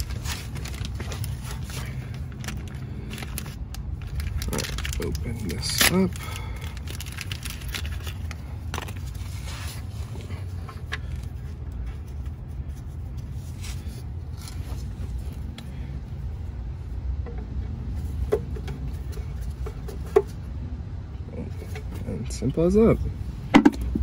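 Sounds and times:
low background hum: 0.0s - 24.0s
faint clicks and scrapes of parts: 6.8s - 15.9s.

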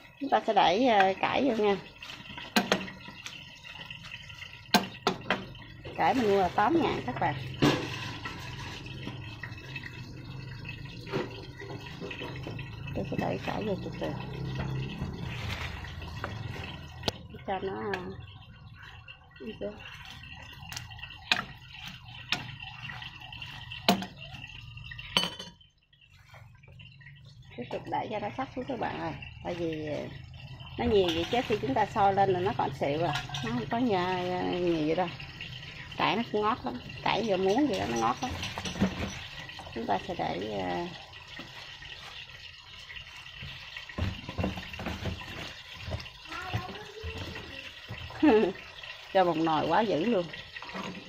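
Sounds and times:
soup boiling and bubbling: 0.0s - 51.0s
leaves rustling: 15.2s - 16.6s
metal ladle clinking against steel pot: 30.7s - 35.4s, 36.9s - 39.6s.

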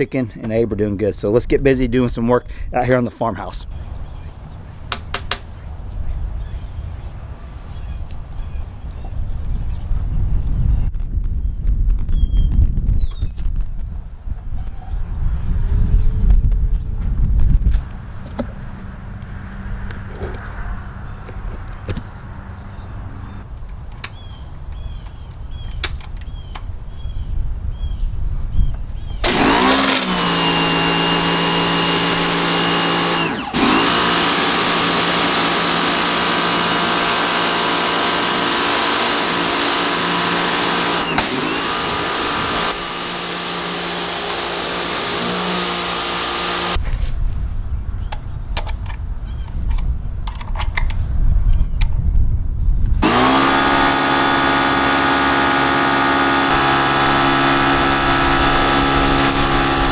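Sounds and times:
low rumble: 9.0s - 23.6s
pressure washer motor humming: 29.2s - 46.8s, 53.0s - 59.9s.

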